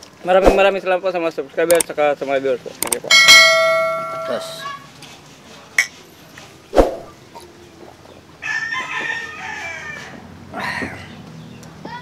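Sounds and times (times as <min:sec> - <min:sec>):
rooster crowing: 0:08.4 - 0:10.2.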